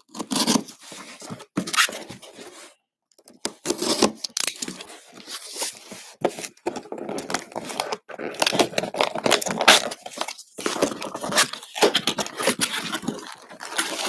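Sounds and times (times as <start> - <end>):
cardboard scraping and rustling: 0.2 - 2.8, 3.5 - 14.0
packing tape tearing: 7.1 - 14.0.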